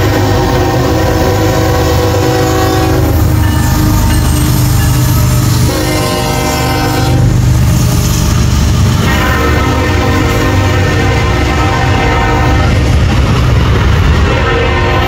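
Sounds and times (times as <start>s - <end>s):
locomotive air horn: 0.0s - 4.2s, 5.5s - 7.4s, 9.0s - 12.9s, 14.2s - 15.0s
low train rumble: 0.0s - 15.0s.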